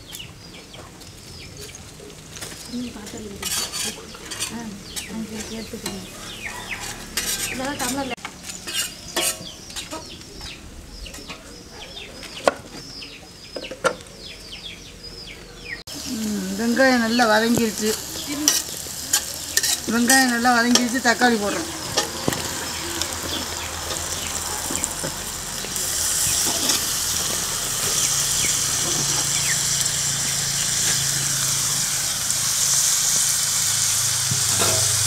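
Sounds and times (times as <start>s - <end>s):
onions sizzling in oil: 0.0s - 11.7s, 15.9s - 35.0s
chickens clucking: 0.1s - 15.8s, 17.5s - 31.6s
spatula scraping wok: 1.5s - 12.8s, 15.9s - 35.0s.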